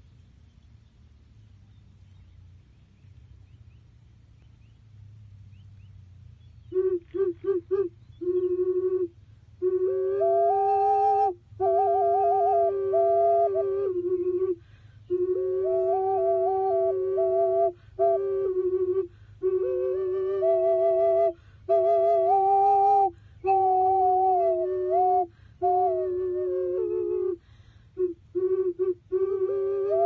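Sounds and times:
double ocarina playing: 6.7s - 30.0s.

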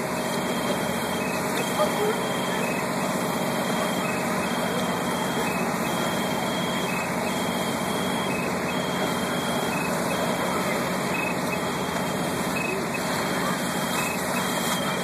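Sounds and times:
fire truck engines running: 0.0s - 15.0s.

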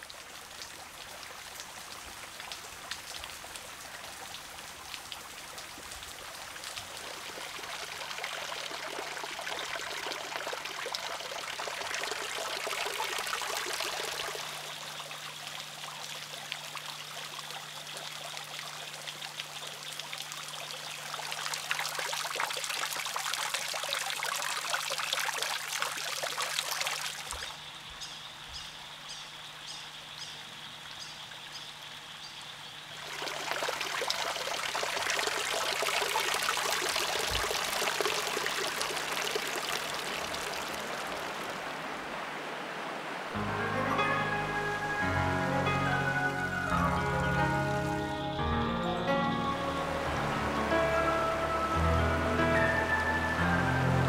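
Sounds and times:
water trickling and dripping: 0.0s - 54.0s.

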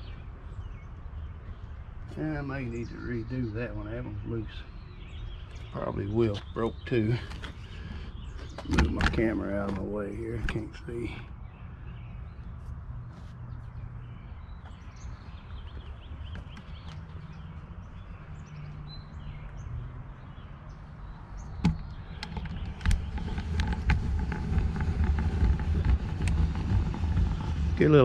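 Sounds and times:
birds chirping faintly: 0.0s - 28.0s
sharp knocks: 21.6s - 23.1s
low rumble: 21.8s - 28.0s.

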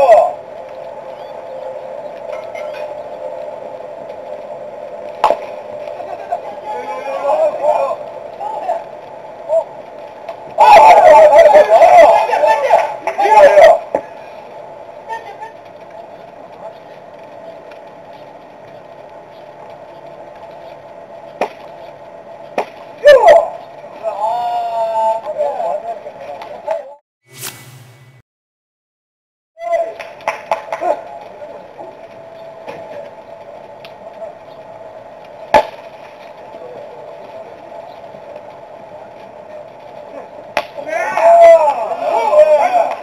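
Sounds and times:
faint background drone: 0.0s - 26.9s
outdoor ballpark background noise: 0.0s - 27.0s, 29.6s - 43.0s.

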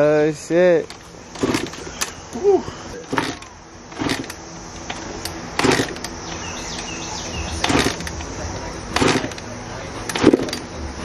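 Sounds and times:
kickstarter clunks: 0.8s - 2.2s, 3.0s - 6.9s, 9.0s - 9.4s.

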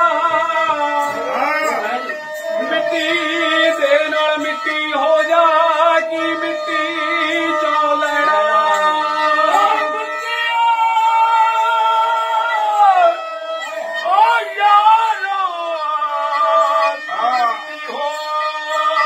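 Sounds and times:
men singing folk song: 0.0s - 13.1s
stringed instrument: 0.0s - 19.0s.

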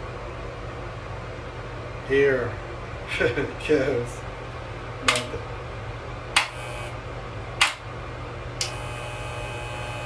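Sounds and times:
electric hair clippers buzzing: 6.4s - 7.0s, 8.6s - 10.0s.

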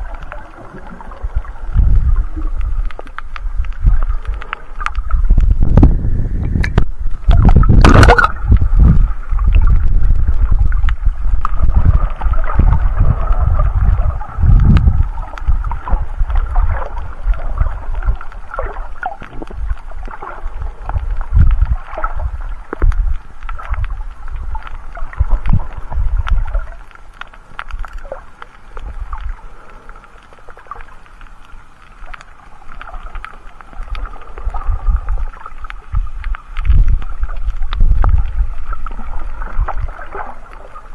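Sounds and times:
water splash: 0.0s - 10.6s
underwater surging rumble: 0.0s - 40.9s
small clicks: 2.4s - 5.5s, 22.0s - 34.5s.

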